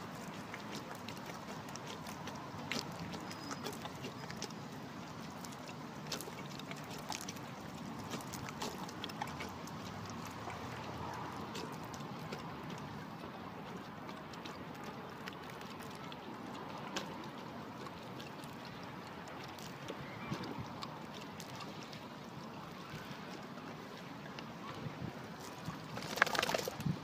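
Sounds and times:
dog lapping water: 0.2s - 13.0s.

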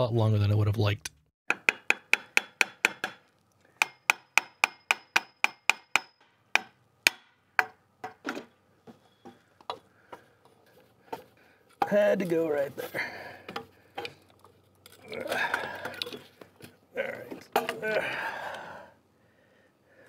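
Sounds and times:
hammer tapping on metal pipe: 3.8s - 8.2s.

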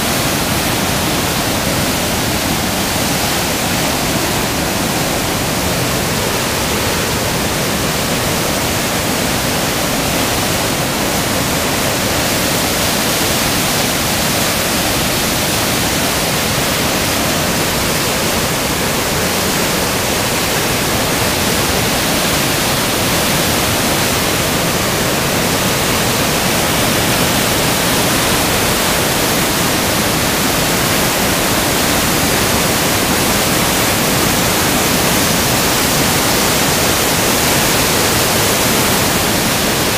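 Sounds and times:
water rushing over a dam spillway: 0.0s - 39.9s.

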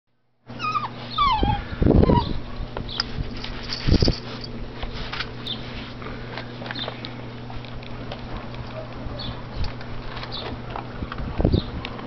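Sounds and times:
puppies whining: 0.5s - 3.1s.

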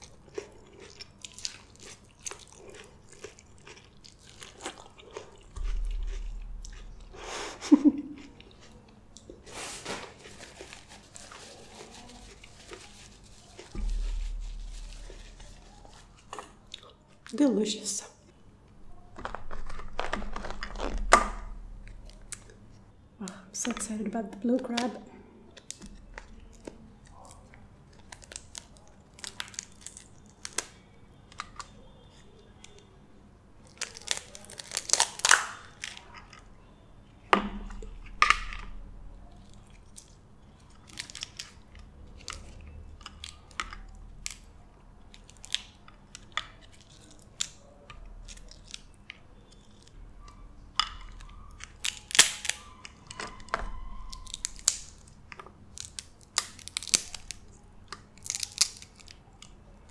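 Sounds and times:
picking and chewing: 0.0s - 17.4s, 18.2s - 23.9s, 24.5s - 32.9s, 33.6s - 59.9s
crab shell cracking: 33.7s - 36.4s, 50.8s - 59.6s.

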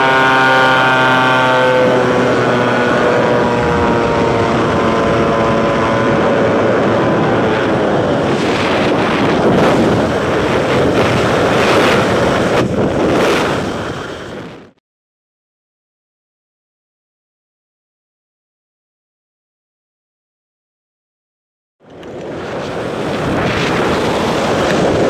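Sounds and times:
aircraft engine and propeller hum: 0.0s - 14.7s, 21.8s - 25.0s
wind buffeting microphone: 0.0s - 14.8s, 21.9s - 25.0s.

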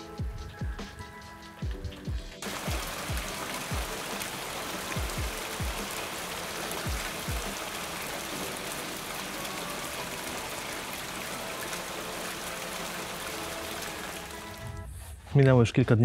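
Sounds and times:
steady rain: 2.4s - 14.8s.

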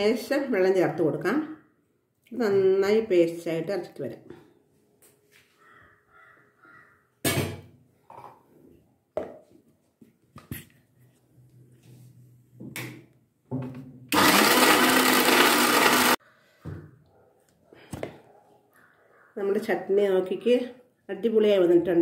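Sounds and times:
mixer grinder running: 14.1s - 16.2s.

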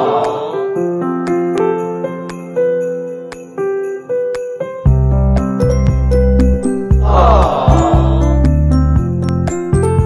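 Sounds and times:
tinkling bell-like melody: 0.5s - 7.0s
deep bass notes: 6.9s - 9.1s.

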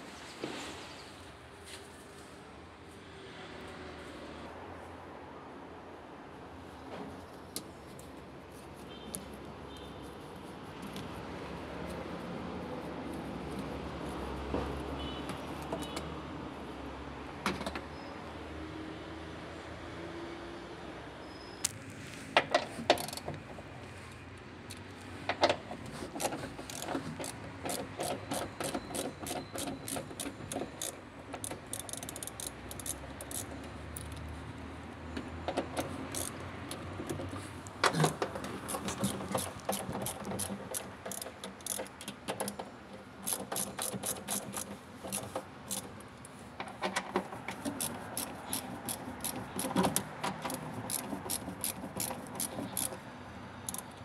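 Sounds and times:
ratchet wrench clicking: 22.9s - 23.3s, 26.1s - 34.3s, 35.6s - 37.3s, 38.0s - 46.0s, 47.5s - 53.0s, 53.6s - 54.0s.

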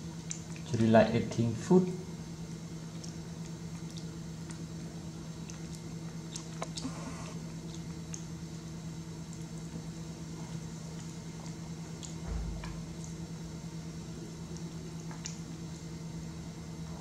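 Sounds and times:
monkey chewing: 2.8s - 8.4s.

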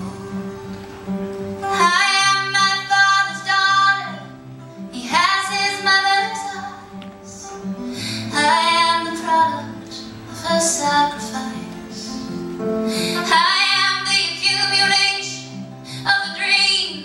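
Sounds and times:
woman singing: 1.7s - 17.0s.

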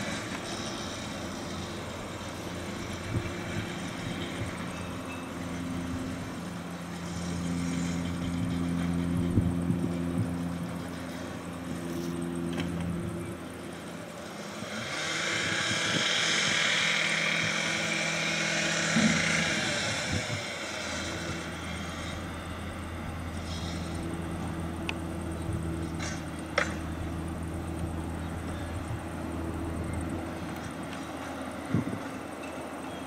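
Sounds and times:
locomotive engine droning: 0.0s - 33.0s
hiss: 14.2s - 22.5s, 23.4s - 24.2s.

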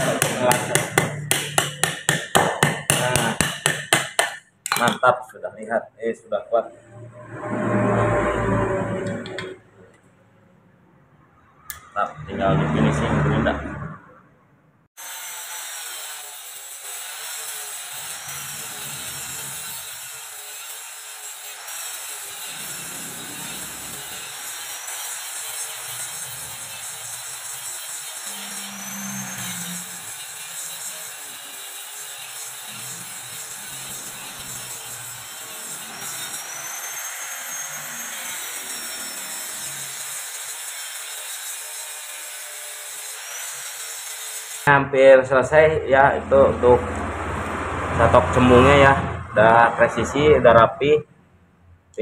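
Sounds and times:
angle grinder grinding steel: 0.0s - 4.9s, 15.0s - 50.9s.

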